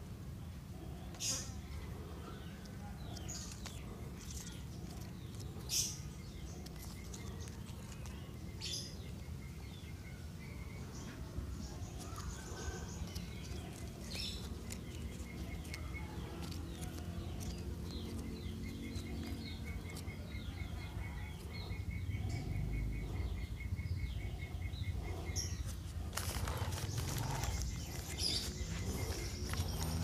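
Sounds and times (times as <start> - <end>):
small birds chirping: 0.1 - 30.0.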